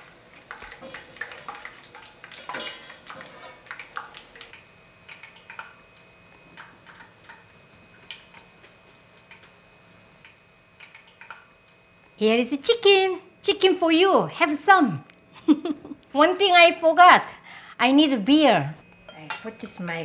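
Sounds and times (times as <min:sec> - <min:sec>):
metal tongs clattering on strainer: 0:02.3 - 0:03.6.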